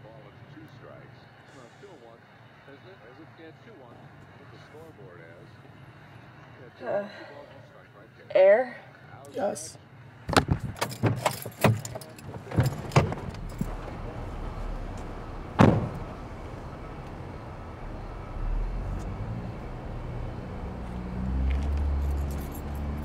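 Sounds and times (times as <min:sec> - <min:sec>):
car door clicks and clunks: 0:10.3 - 0:17.2
car door shutting: 0:10.3 - 0:18.0
steady low hum: 0:12.6 - 0:21.4.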